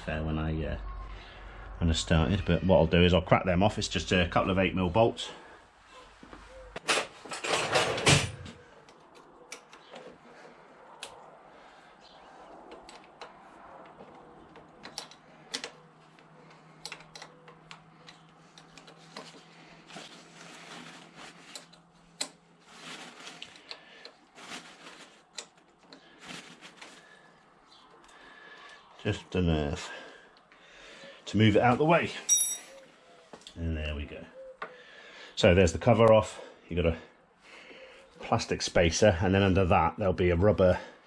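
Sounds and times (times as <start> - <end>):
tool clatter: 6.8 - 8.5
hand tools clicking and tapping: 8.8 - 10.2, 12.6 - 19.5, 21.4 - 22.4.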